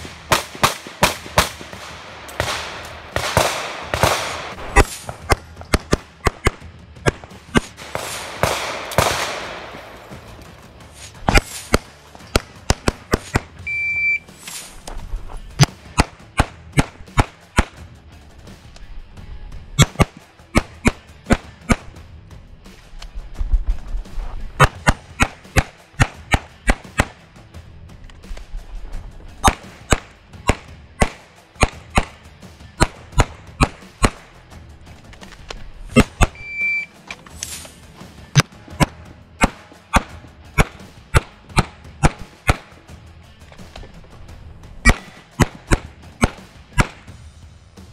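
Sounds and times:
pistol shots: 0.0 - 10.5, 11.1 - 13.6, 15.6 - 17.8, 19.8 - 22.0, 24.6 - 27.2, 29.4 - 32.2, 32.8 - 34.4, 35.9 - 36.7, 38.4 - 42.8, 44.8 - 47.2
short electronic beep: 13.7 - 14.3, 36.4 - 36.9.

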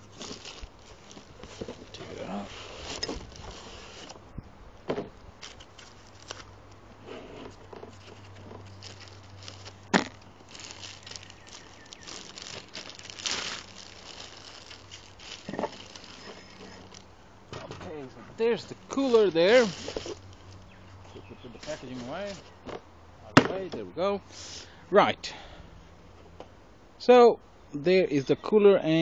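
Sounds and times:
cardboard packaging rustling: 0.0 - 4.2, 4.8 - 17.1, 17.8 - 22.8.

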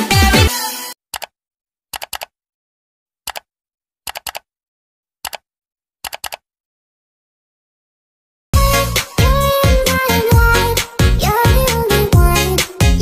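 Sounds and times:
keyboard typing clicks: 1.1 - 1.3, 1.9 - 2.3, 3.3 - 3.5, 4.1 - 4.5, 5.2 - 5.4, 6.0 - 6.4.

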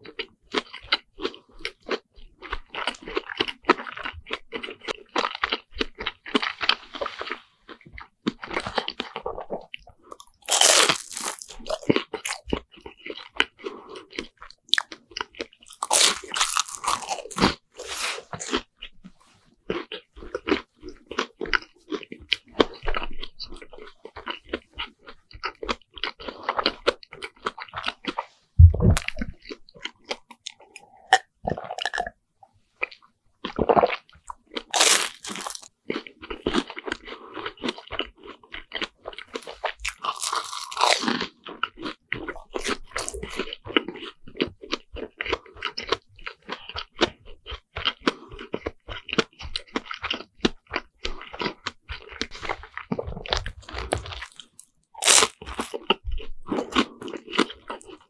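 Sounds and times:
crunchy fried bread chewing: 0.0 - 58.0
wet mouth sounds: 19.8 - 32.2, 32.8 - 35.7, 36.3 - 58.0
low thump: 28.6 - 29.2.

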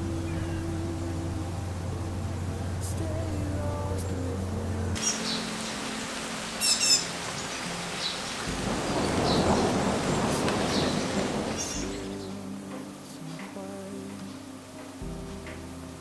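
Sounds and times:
birds chirping: 0.0 - 16.0
steady rain: 0.0 - 16.0
low roll of thunder: 8.4 - 12.3.

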